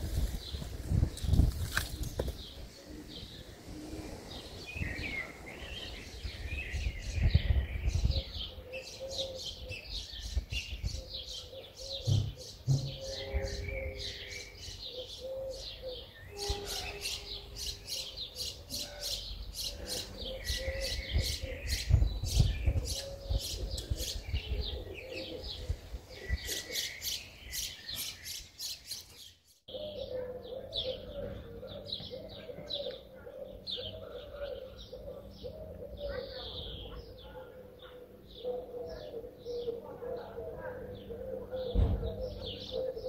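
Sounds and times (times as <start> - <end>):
small birds chirping: 0.0 - 43.0
low cooing: 22.8 - 26.9, 29.7 - 43.0.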